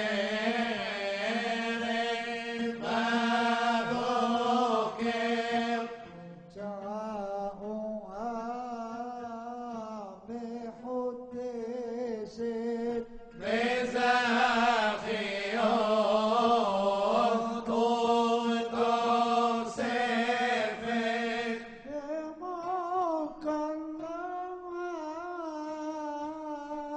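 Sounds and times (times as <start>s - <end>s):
men chanting a hymn: 0.0s - 7.5s, 12.7s - 23.6s.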